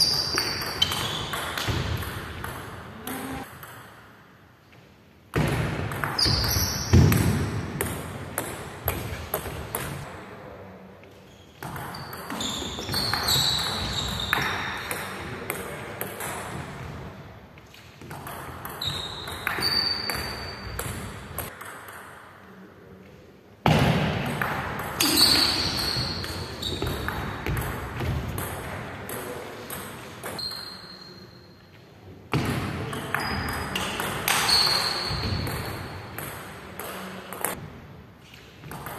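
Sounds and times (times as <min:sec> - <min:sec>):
shoe squeaks: 0:00.0 - 0:01.5, 0:06.2 - 0:07.1, 0:11.2 - 0:14.7, 0:18.8 - 0:20.7, 0:25.0 - 0:27.1, 0:30.4 - 0:31.6, 0:33.2 - 0:35.5.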